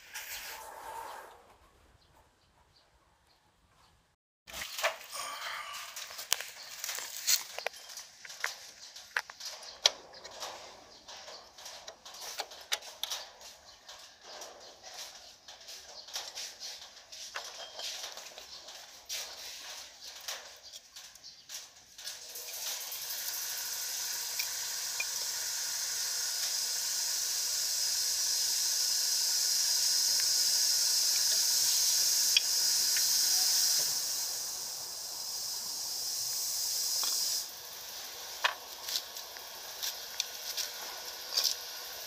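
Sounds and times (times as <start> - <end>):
aerosol spray can hissing: 22.3 - 42.0.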